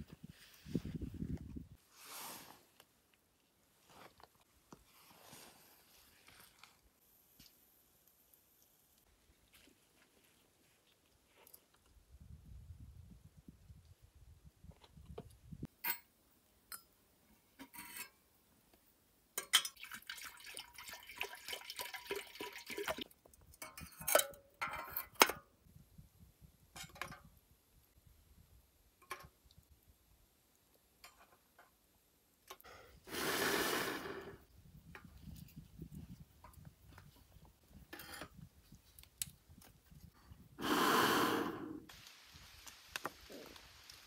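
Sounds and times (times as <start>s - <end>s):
metal lid and fittings clinking: 19.4s - 19.8s, 23.6s - 25.4s
water pouring: 19.6s - 23.2s
blowing into samovar: 33.0s - 34.5s, 40.5s - 41.9s.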